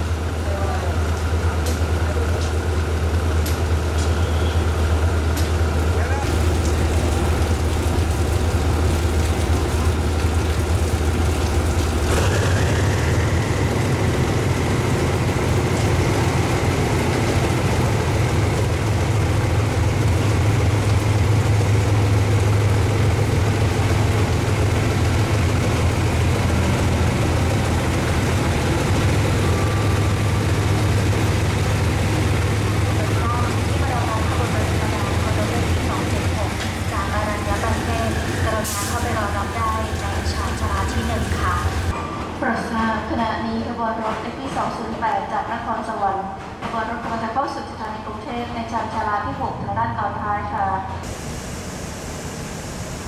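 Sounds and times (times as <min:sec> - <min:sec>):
diesel engines droning: 0:00.0 - 0:42.0.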